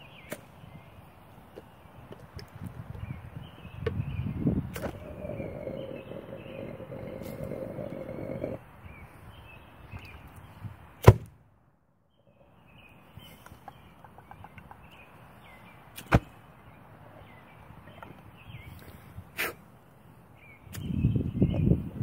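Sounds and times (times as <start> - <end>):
sharp pops of igniting vapour: 4.7 - 5.0.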